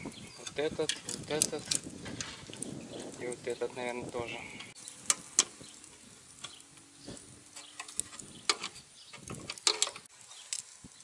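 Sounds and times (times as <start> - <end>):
metal skewers clinking on grill: 0.3 - 1.9.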